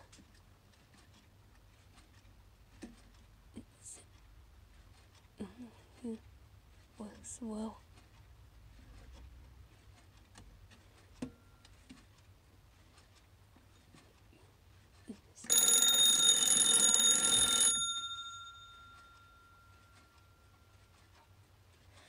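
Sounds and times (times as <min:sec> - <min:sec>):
clock hands clicking: 0:15.4 - 0:22.0
alarm clock bells ringing: 0:15.5 - 0:21.0.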